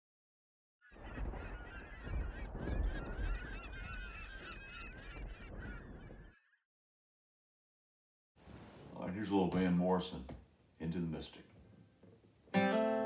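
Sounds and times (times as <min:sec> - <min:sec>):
flock of birds calling: 0:00.8 - 0:06.6.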